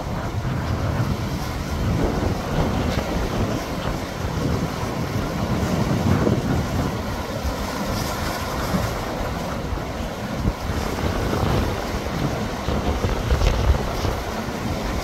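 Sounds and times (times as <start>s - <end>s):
seawater surging against concrete: 0.0s - 15.0s
wind buffeting microphone: 0.0s - 15.0s.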